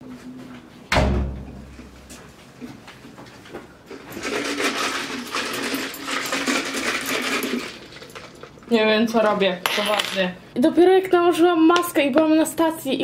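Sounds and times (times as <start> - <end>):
thump: 0.9 - 1.6
ice cubes clattering in plastic cup: 4.1 - 8.6.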